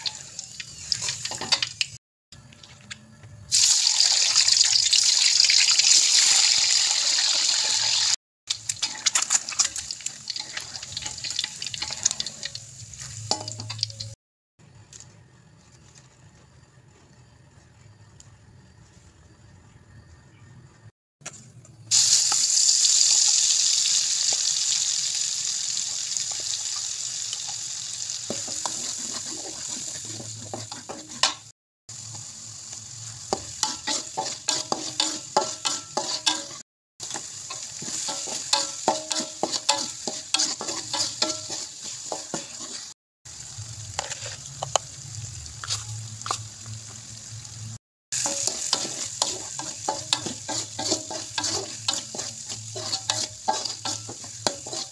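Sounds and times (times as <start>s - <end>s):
sizzling in a wok: 0.0s - 2.5s, 3.5s - 20.9s, 21.8s - 54.9s
spatula scraping a wok: 8.7s - 14.1s, 26.2s - 46.9s, 48.2s - 54.9s
paste hissing in hot oil: 21.9s - 54.9s.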